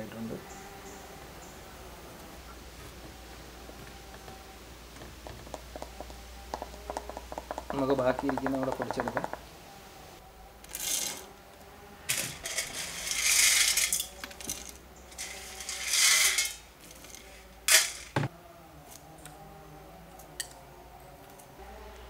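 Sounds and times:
lentils poured into metal jar: 0:12.2 - 0:18.1.

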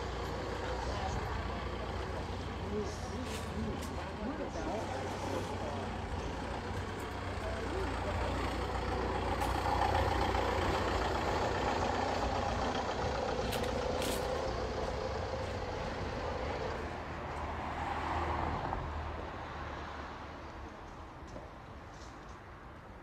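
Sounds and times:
large vehicle engine running: 0:00.0 - 0:17.8
street noise: 0:00.0 - 0:23.0.

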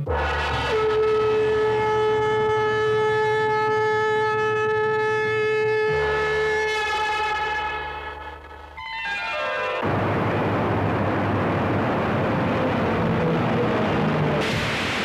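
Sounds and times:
conch shell blown: 0:00.0 - 0:09.9
low musical drone: 0:00.0 - 0:15.0.

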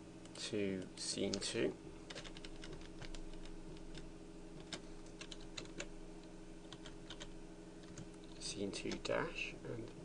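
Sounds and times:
steady low hum: 0:00.0 - 0:10.0
keyboard typing: 0:02.1 - 0:05.9, 0:06.7 - 0:09.1.

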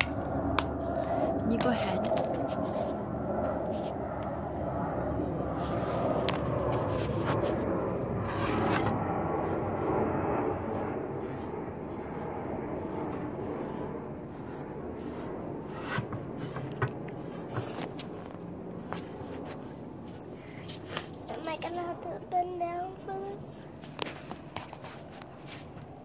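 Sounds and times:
sponge brush scraping on wood: 0:06.7 - 0:21.6.

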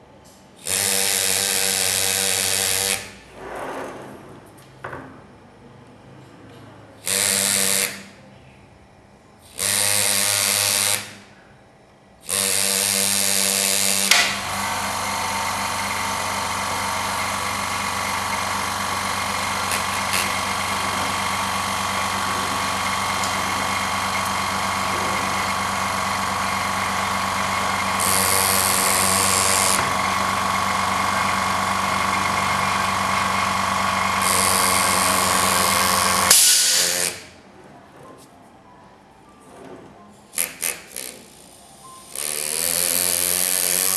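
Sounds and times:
pneumatic engraver hammering metal: 0:00.6 - 0:03.6, 0:07.0 - 0:08.2, 0:09.4 - 0:11.3, 0:12.2 - 0:37.4, 0:40.3 - 0:43.9.

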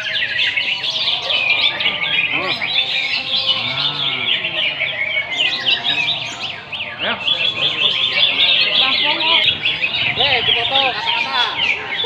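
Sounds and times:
songbirds chorus chirping: 0:00.0 - 0:12.0.

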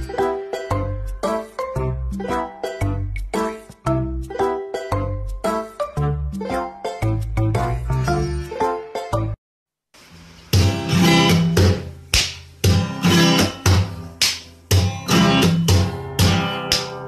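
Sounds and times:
acoustic guitar strumming: 0:10.6 - 0:12.0, 0:12.6 - 0:17.0.

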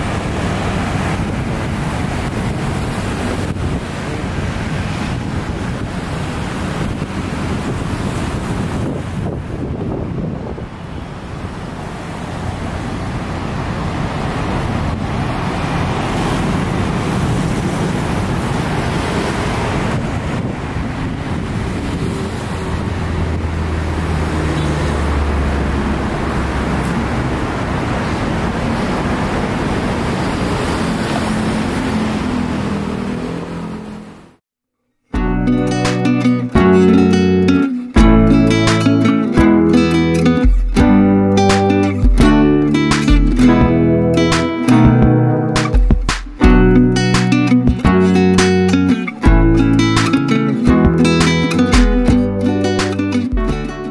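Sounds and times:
cars and motorbikes passing: 0:00.0 - 0:34.4, 0:35.4 - 0:53.9
road traffic: 0:00.0 - 0:34.4, 0:35.2 - 0:53.9
deep engine hum: 0:35.2 - 0:53.9.

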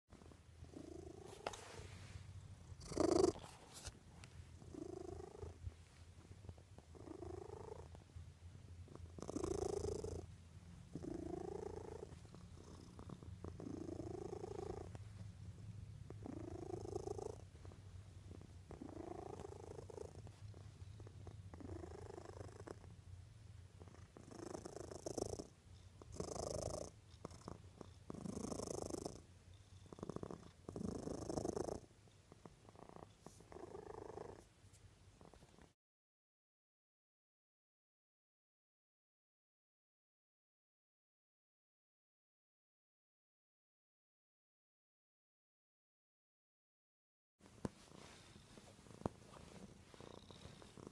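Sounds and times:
cat purring: 0:00.1 - 0:35.8, 0:47.4 - 0:50.9.

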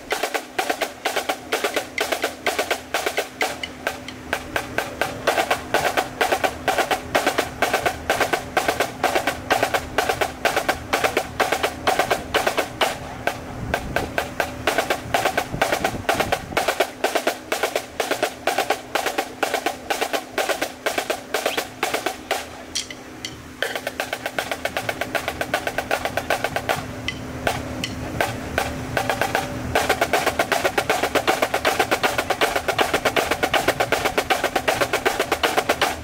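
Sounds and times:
marching snare drums playing: 0:00.0 - 0:36.0.

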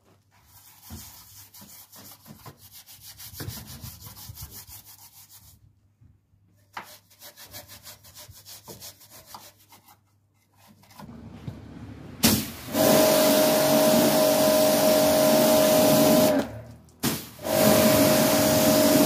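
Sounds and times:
brush scrubbing wheel arch: 0:00.3 - 0:05.6, 0:06.8 - 0:11.1, 0:12.7 - 0:19.0
pressure washer spraying: 0:12.2 - 0:19.0.

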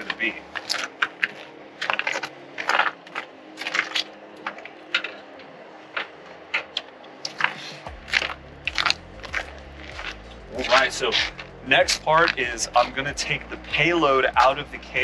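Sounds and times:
low rumble: 0:07.9 - 0:15.0.

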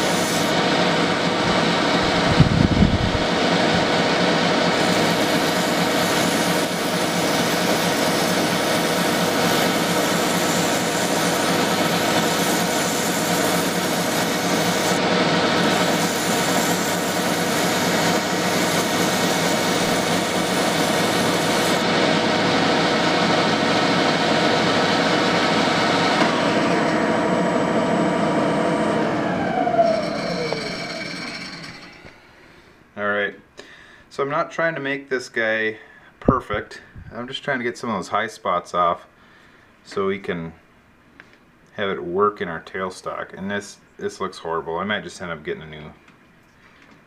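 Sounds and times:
metal lathe motor humming: 0:00.0 - 0:32.4.

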